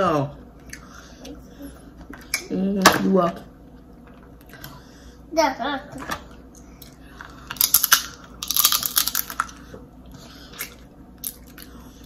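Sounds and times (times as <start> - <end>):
crab shell cracking: 7.5 - 9.5.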